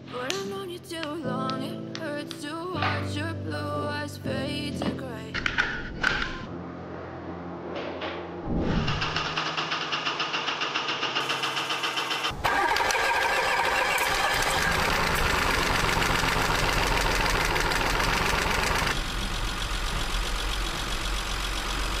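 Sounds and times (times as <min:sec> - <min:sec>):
engine cranking and starting: 0:08.8 - 0:22.0.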